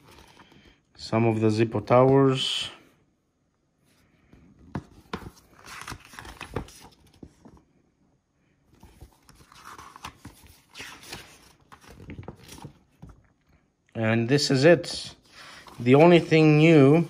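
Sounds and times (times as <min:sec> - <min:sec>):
paper pages rustling: 0:00.0 - 0:00.8, 0:04.6 - 0:07.7, 0:08.7 - 0:13.3, 0:15.4 - 0:17.0.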